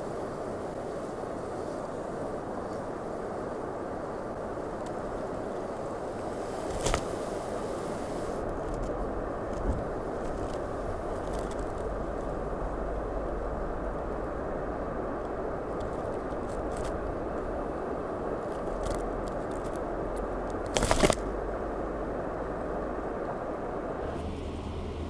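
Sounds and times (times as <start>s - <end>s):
outdoor background noise: 0.0s - 25.0s
mouse nibbling seeds: 18.4s - 21.2s.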